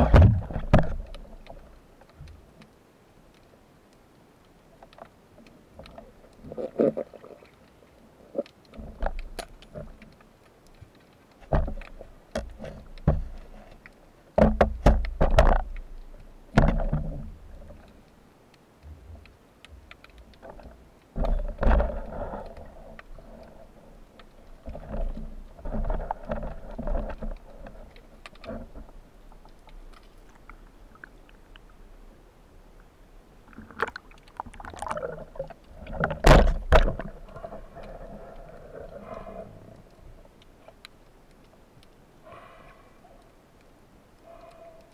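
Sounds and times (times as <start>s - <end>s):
muffled underwater knocks: 14.4s - 15.7s, 16.5s - 17.3s, 36.0s - 37.2s
rushing gurgling water: 20.3s - 40.4s.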